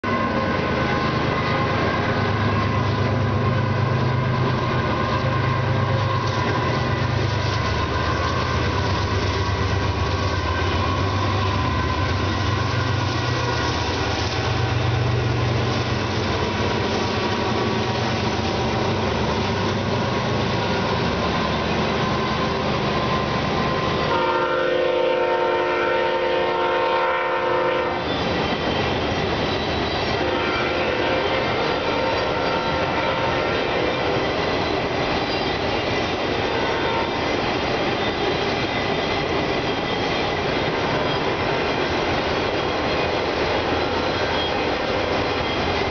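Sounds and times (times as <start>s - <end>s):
locomotive engine rumble: 0.0s - 45.9s
rail noise: 0.0s - 45.9s
train horn blast: 23.8s - 28.3s, 30.0s - 34.2s, 36.5s - 37.2s.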